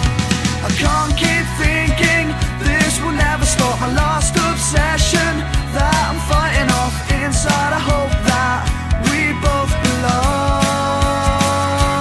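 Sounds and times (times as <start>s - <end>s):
band with drum beat: 0.0s - 12.0s
person singing: 0.0s - 12.0s.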